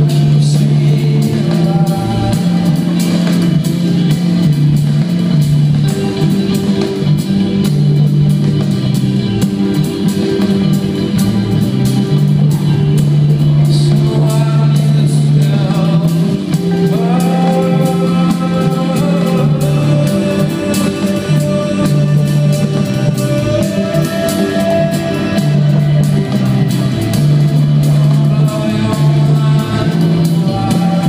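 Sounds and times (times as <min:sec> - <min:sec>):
person singing: 0:00.0 - 0:04.2, 0:13.3 - 0:31.0
bass line: 0:00.0 - 0:31.0
busy drums: 0:00.0 - 0:31.0.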